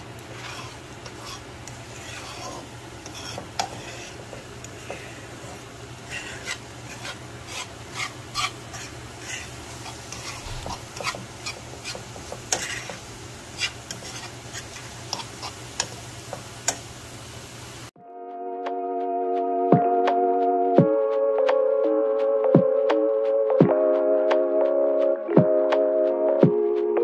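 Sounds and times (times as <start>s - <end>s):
fork scraping frying pan: 0.0s - 16.9s.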